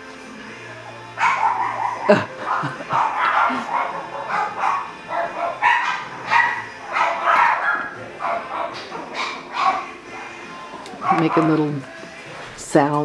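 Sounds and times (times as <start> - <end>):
puppies high calls: 1.0 - 11.9.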